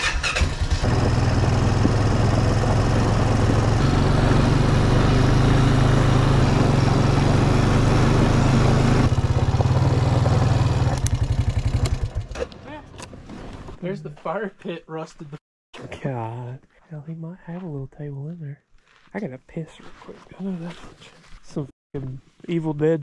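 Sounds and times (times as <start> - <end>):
atv engine running: 0.0 - 12.6.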